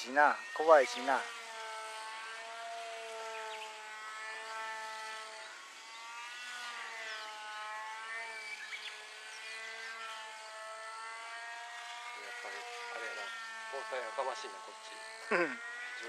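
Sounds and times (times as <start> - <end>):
model airplane motor and propeller drone: 0.0 - 16.0.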